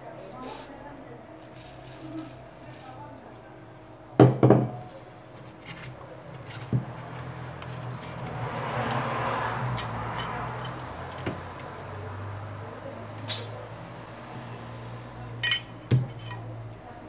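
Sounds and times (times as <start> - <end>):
plastic sheet crinkling: 1.4 - 3.2.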